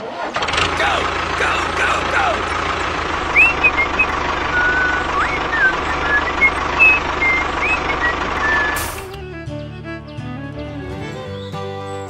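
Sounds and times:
tractor engine running: 0:00.0 - 0:09.2
bird chirps: 0:03.1 - 0:09.1.

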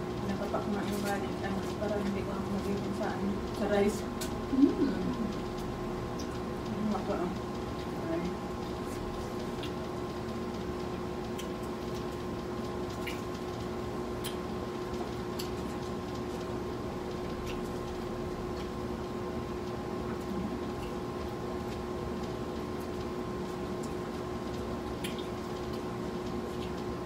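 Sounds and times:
electrical hum: 0:00.0 - 0:27.0
people chewing crunchy food: 0:08.6 - 0:27.0
wet mouth clicks and smacks: 0:11.3 - 0:12.1, 0:12.9 - 0:13.4, 0:14.2 - 0:14.5, 0:25.0 - 0:26.8.

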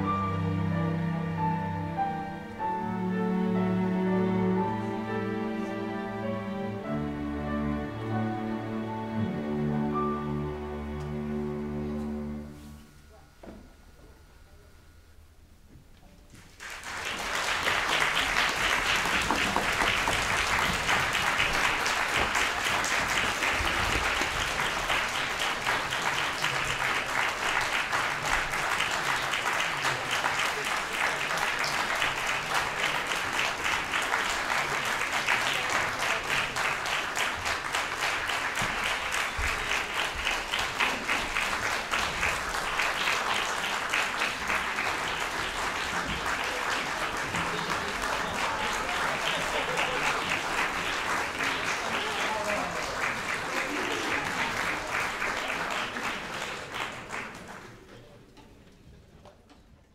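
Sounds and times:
audience applauding: 0:16.4 - 0:58.2.

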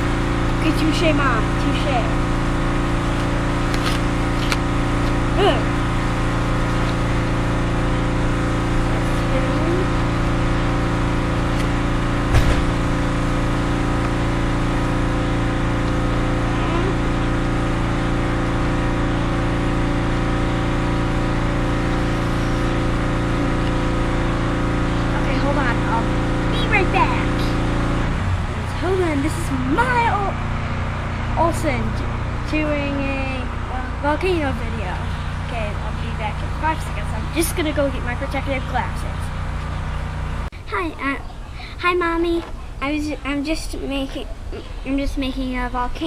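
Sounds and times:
machine hum: 0:00.0 - 0:46.0
sharp knock: 0:12.3 - 0:12.8.

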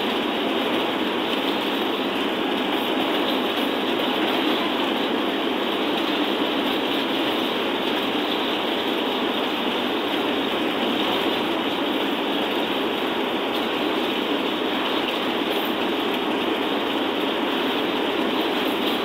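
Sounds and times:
bus road and engine noise: 0:00.0 - 0:19.0.

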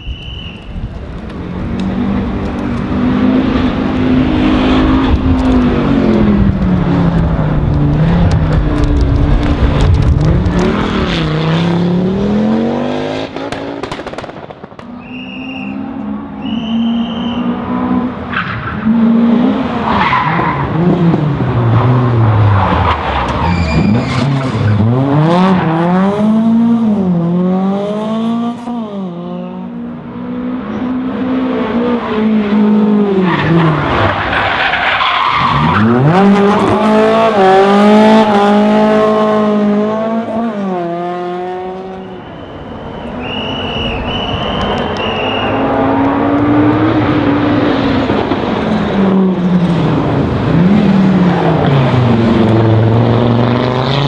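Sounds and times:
rally car engines at full throttle: 0:00.0 - 0:54.0
tyre squeal: 0:15.0 - 0:17.6, 0:22.8 - 0:24.9, 0:42.0 - 0:46.0.

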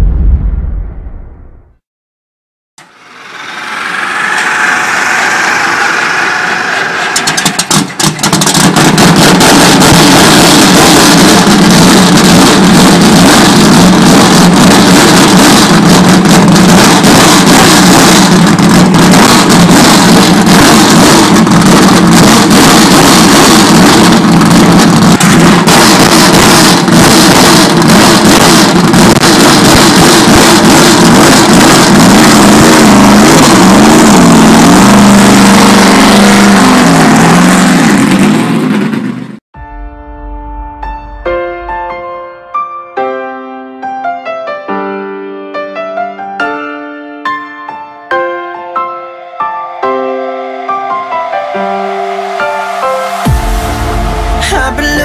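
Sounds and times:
go-kart engine running: 0:02.8 - 0:39.4.

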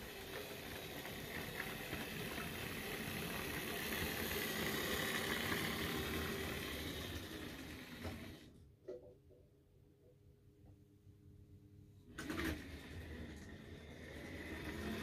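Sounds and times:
model train rumbling and rattling: 0:00.0 - 0:08.5.

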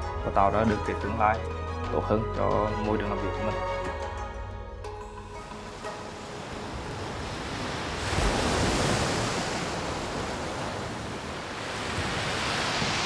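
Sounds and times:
surf breaking on beach: 0:05.7 - 0:13.0.

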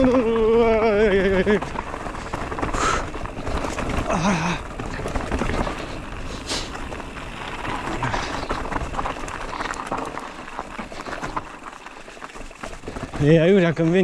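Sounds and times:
rider vocal sound: 0:00.0 - 0:01.8
mountain bike rattling and knocking: 0:00.0 - 0:14.0.

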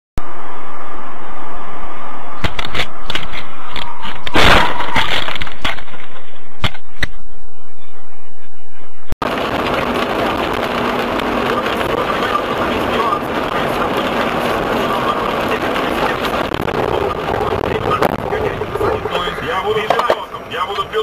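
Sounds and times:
tyres on wet road: 0:09.2 - 0:21.0.

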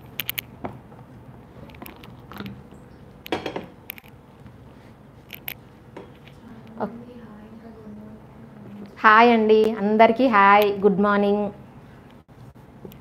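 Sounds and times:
kitchenware knocking on tabletop: 0:03.3 - 0:03.8.

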